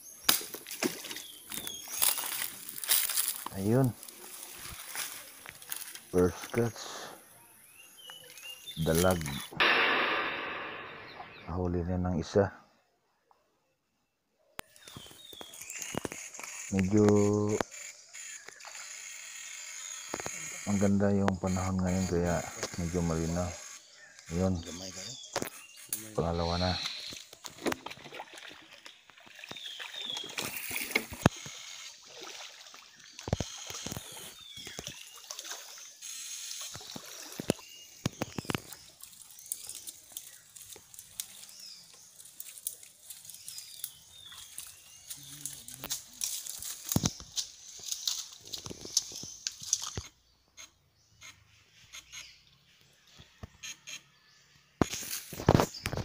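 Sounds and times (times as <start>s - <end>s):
person wading through stream water: 0.6s - 6.6s, 27.3s - 46.9s
water sloshing and splashing: 27.3s - 36.0s.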